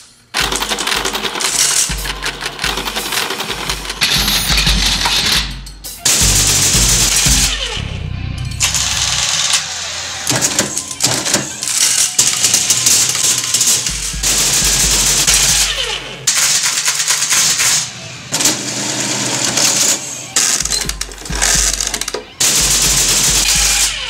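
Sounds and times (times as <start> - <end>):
calculating machine gears clattering: 0.3 - 24.0
low hum: 6.2 - 11.7.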